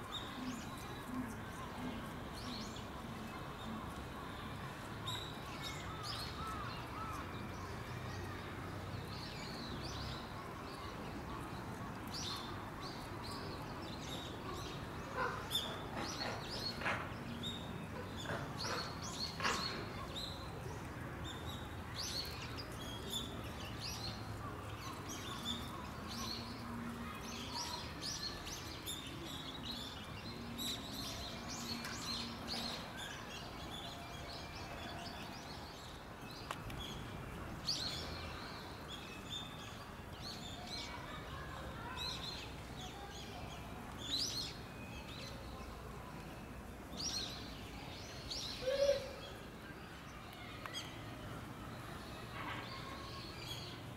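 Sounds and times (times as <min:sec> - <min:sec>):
steady background noise: 0:00.0 - 0:53.9.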